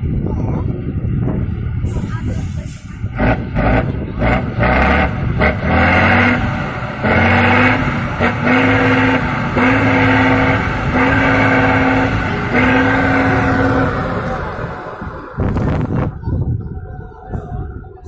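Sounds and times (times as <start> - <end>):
diesel engine revving hard: 1.9 - 16.2.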